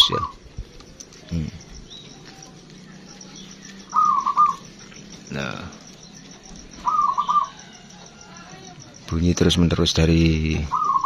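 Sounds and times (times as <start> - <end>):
dove cooing: 0.0 - 9.2, 10.4 - 11.0
louder lower bird call: 3.8 - 4.7, 6.8 - 7.8, 10.7 - 11.0.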